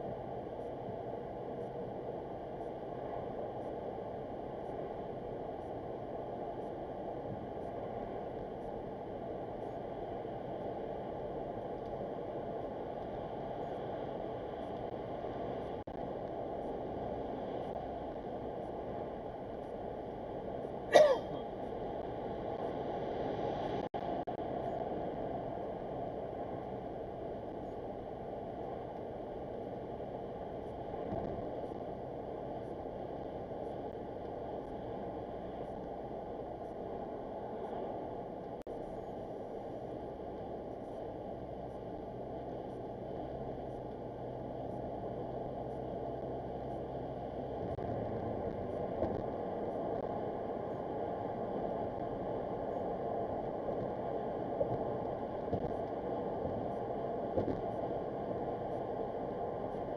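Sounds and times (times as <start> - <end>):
car road and engine noise: 26.7 - 59.0.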